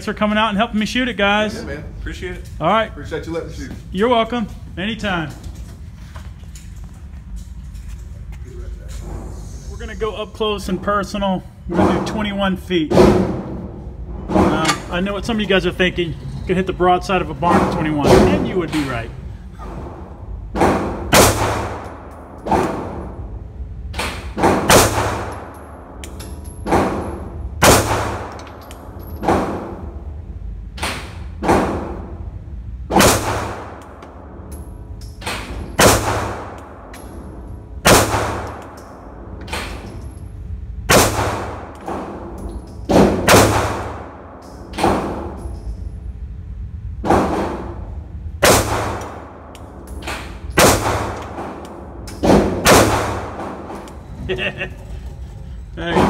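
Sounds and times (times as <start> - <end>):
pistol shots echoing indoors: 19.8 - 40.2, 40.8 - 45.8, 47.0 - 54.0.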